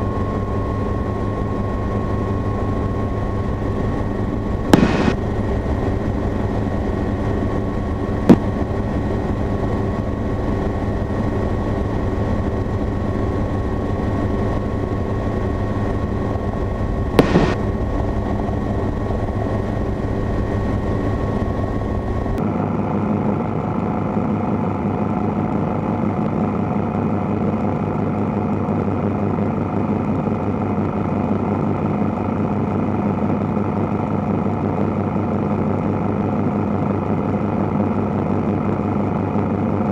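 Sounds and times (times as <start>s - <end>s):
helicopter rushing noise: 0.0s - 22.4s
helicopter engine and rotor drone: 0.0s - 39.9s.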